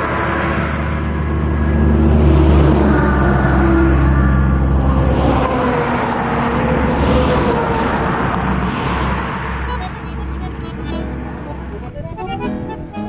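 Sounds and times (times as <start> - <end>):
diesel truck engine humming: 0.0 - 13.0
vehicles passing at speed: 0.0 - 13.0.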